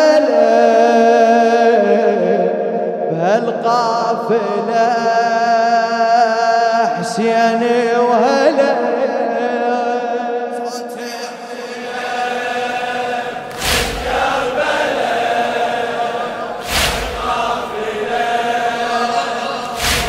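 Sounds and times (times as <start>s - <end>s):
men chanting in held notes: 10.9s - 20.0s
collective chest-beating strikes: 13.3s - 20.0s.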